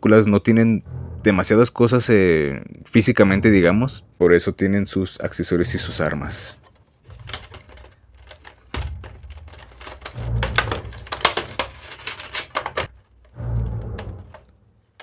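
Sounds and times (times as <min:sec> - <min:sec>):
plastic packaging crackling: 0:05.8 - 0:13.3
dull bumps of packaging: 0:06.6 - 0:13.3.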